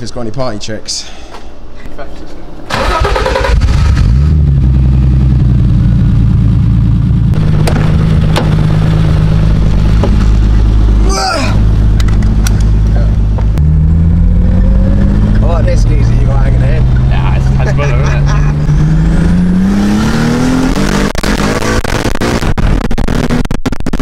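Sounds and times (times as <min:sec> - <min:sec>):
car engine idling: 0:02.7 - 0:19.2.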